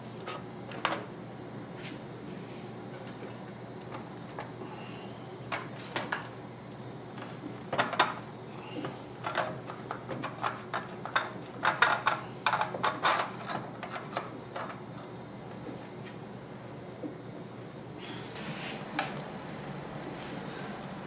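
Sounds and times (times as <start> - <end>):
steady low hum: 11.0 - 21.0.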